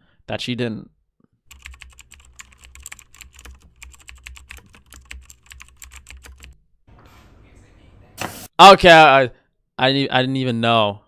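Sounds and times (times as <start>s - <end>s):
computer keyboard typing: 1.5s - 6.6s.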